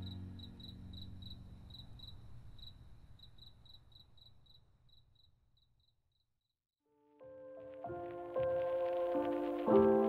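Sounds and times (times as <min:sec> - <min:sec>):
cricket chirping: 0:00.0 - 0:06.5.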